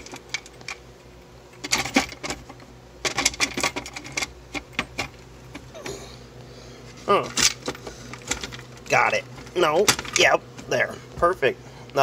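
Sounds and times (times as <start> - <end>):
loose screws rattling: 1.6 - 5.7.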